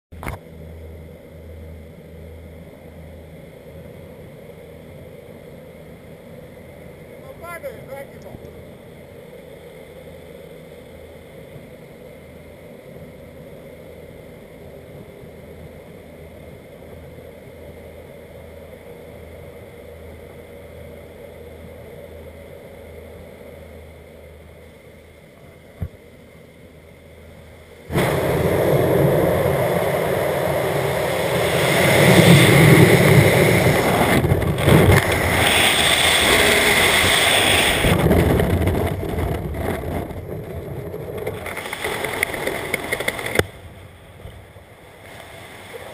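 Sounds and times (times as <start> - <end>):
plane engine drone: 0.1 - 45.9
loud rush of wind: 27.9 - 44.6.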